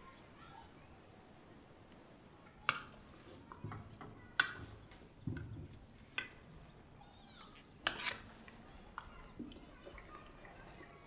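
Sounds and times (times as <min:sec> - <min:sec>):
cutlery clinking on plates: 0:07.4 - 0:08.4.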